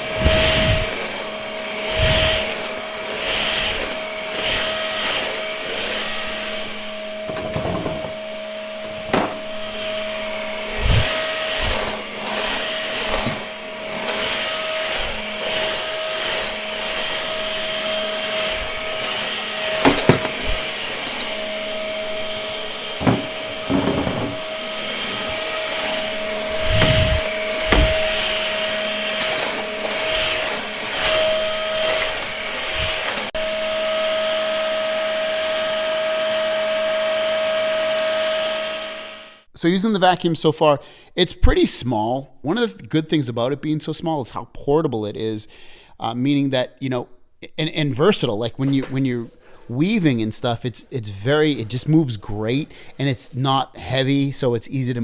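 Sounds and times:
stick vacuum whining: 0.0 - 39.5, 48.0 - 54.2
sharp clicks and knocks: 7.3 - 8.2.

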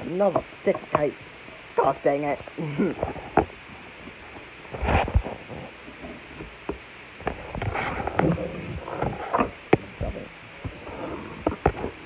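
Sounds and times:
scraping and rustling: 2.4 - 12.0.

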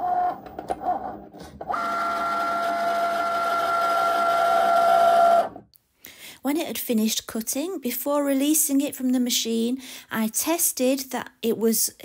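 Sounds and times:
cutting machine motors whirring: 0.0 - 5.6.

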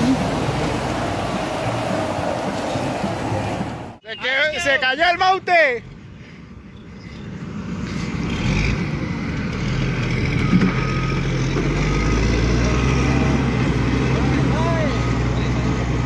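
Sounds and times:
heavy diesel engine running: 0.0 - 4.0.

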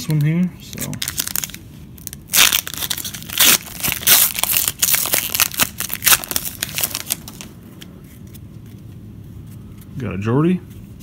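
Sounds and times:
plastic wrapper tearing and crinkling: 0.1 - 7.5.

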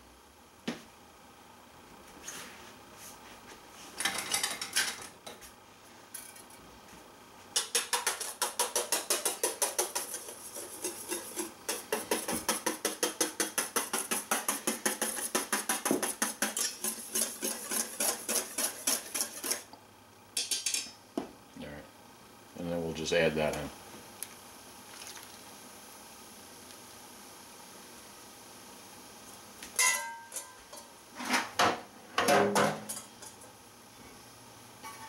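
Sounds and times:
whisk beating in metal bowl: 7.6 - 19.7.

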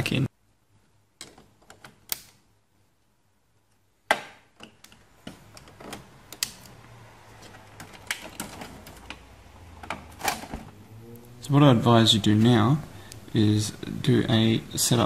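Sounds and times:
sharp plastic snap: 2.0 - 2.4.

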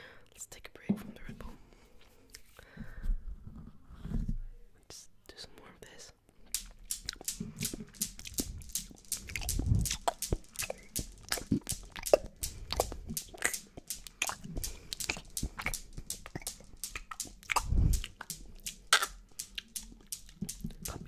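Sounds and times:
wet mouth clicks and smacks: 6.5 - 21.0.

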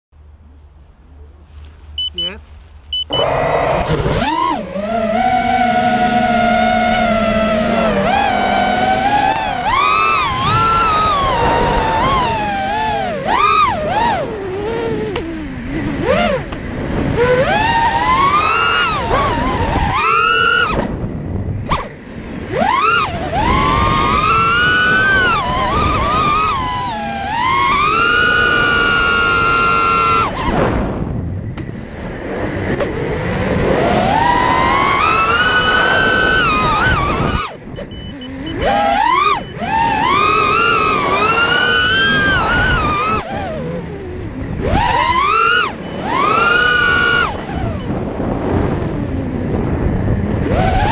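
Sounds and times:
drone motors whining: 2.0 - 50.9.

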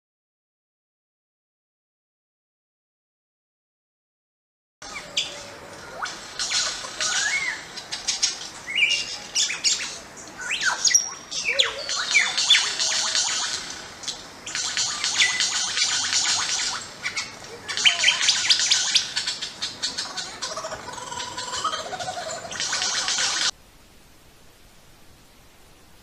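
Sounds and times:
sliding whistled bird notes: 4.8 - 20.2
small birds chirping: 4.8 - 23.6.

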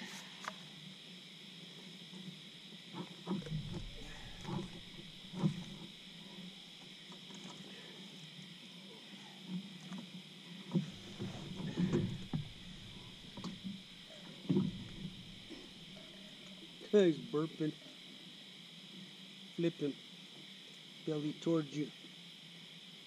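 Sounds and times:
night insects chirring: 0.0 - 23.0
knocks and bumps in boat: 3.3 - 5.9, 10.7 - 15.9.

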